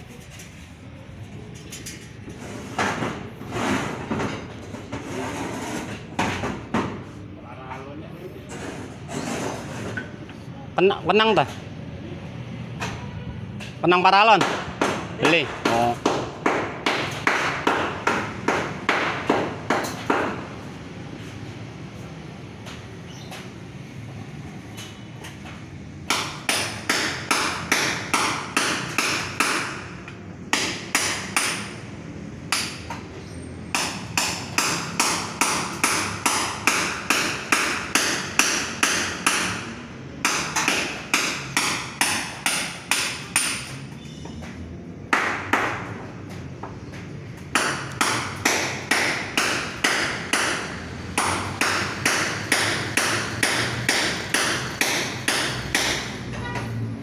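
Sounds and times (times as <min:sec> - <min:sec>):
hammer striking metal: 0:33.7 - 0:43.8, 0:47.5 - 0:56.6.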